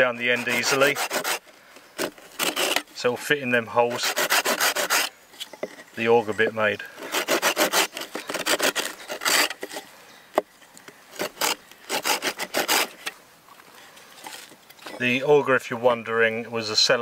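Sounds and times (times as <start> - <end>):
folding saw cutting branch: 0.0 - 13.2.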